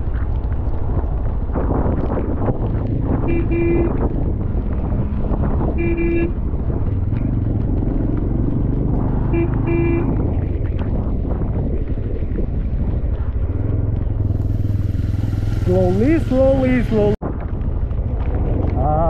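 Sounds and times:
vehicle rumble on the move: 0.0 - 19.0
vehicle horn beeping: 3.3 - 4.0, 5.8 - 6.3, 9.3 - 10.1.

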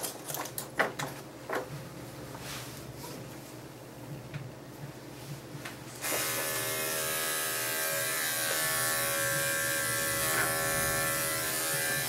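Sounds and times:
electric clippers humming: 6.0 - 12.0.

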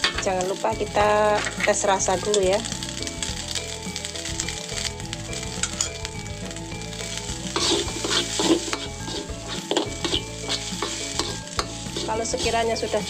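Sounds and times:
rice sizzling in a wok: 0.0 - 13.0
metal spatula scraping a wok: 7.5 - 13.0.

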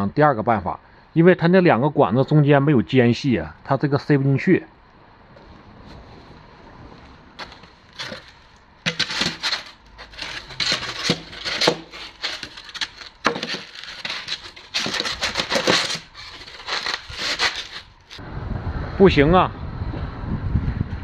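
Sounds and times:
foam scraping against metal pipes: 7.4 - 18.2.

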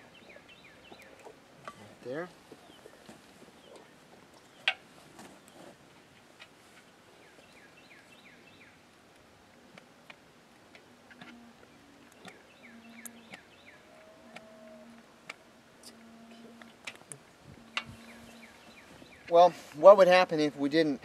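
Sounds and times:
bird chirps: 0.0 - 1.3, 11.2 - 15.0, 17.6 - 19.4.

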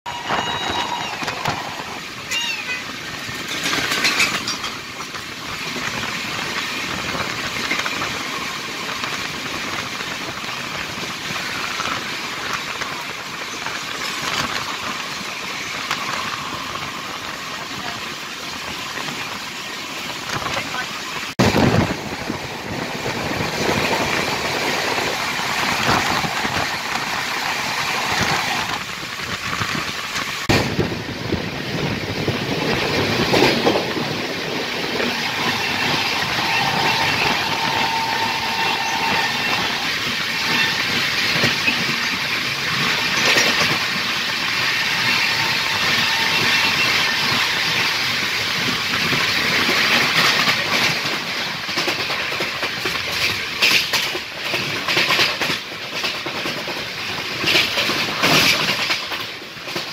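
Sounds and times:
clickety-clack of wheels: 0.1 - 59.9
train wheels rolling on rails: 0.1 - 59.9.

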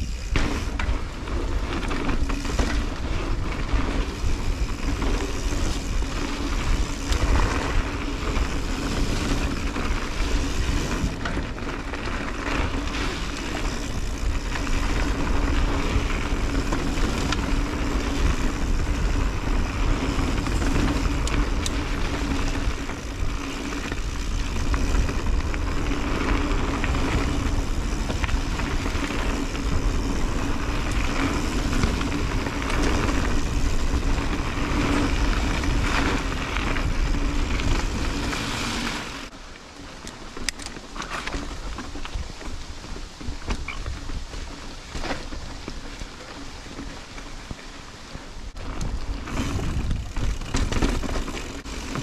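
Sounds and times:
bike knocking and rattling: 0.0 - 52.0
wind on microphone: 48.5 - 51.0.

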